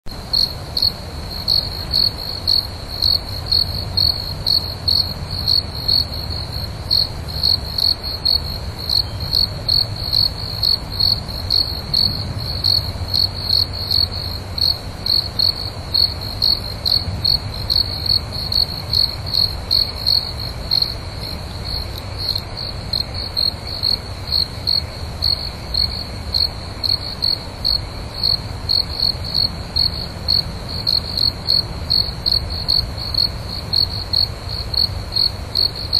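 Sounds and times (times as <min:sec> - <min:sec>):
cricket chirping: 0:00.1 - 0:35.9.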